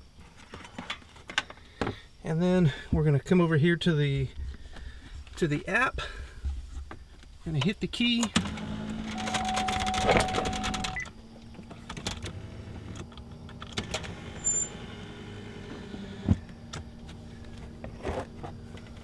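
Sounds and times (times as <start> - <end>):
electric motor whine with ticking: 8.4 - 11.2, 11.8 - 17.9.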